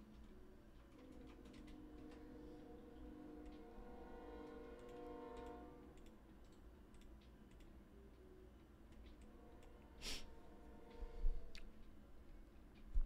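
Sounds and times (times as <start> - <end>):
soft clicks: 4.8 - 9.7.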